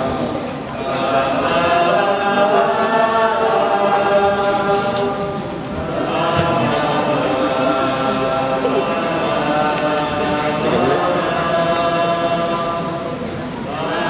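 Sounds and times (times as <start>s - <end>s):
group of voices chanting: 5.8s - 14.0s.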